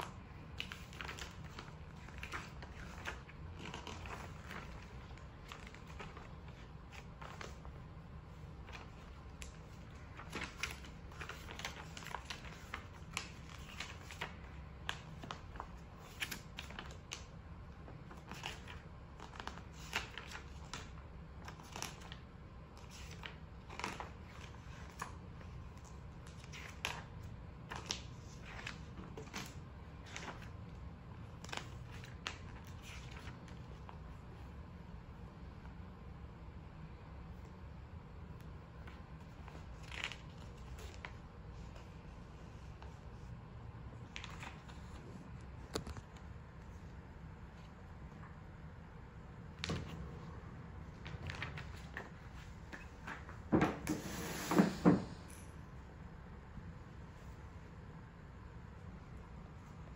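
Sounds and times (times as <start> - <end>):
paper and plastic rustling: 0.1 - 17.3, 22.8 - 33.9, 50.9 - 54.3.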